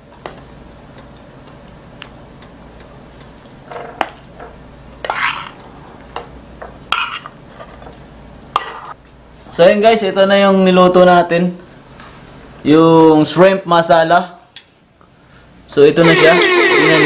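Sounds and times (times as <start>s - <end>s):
metal spoon scraping frying pan: 6.9s - 7.3s.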